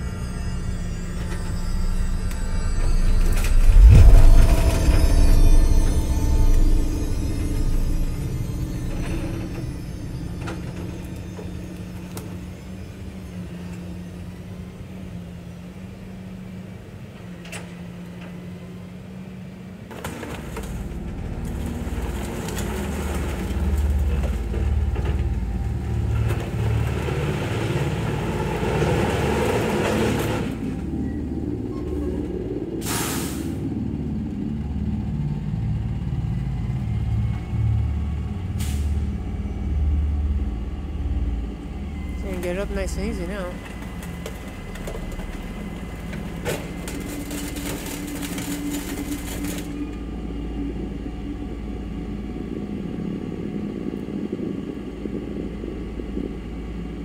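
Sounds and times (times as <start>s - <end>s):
truck diesel engine running: 0.0s - 57.0s
air release hiss: 32.8s - 33.6s.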